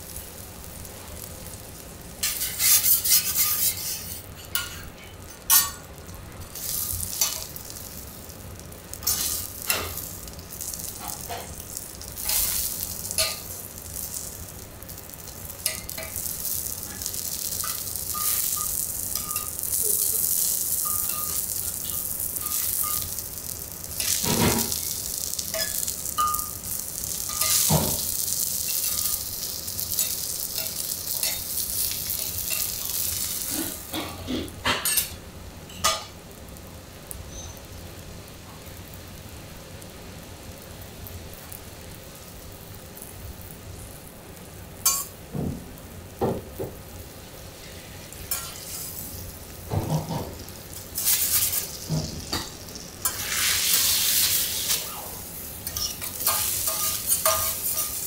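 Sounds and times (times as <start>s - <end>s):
meat sizzling on griddle: 0.0s - 58.0s
utensils clicking on griddle: 2.2s - 5.9s, 6.5s - 8.0s, 8.9s - 14.4s, 15.2s - 23.3s, 23.9s - 33.8s, 48.2s - 49.1s, 49.9s - 55.0s, 55.6s - 58.0s.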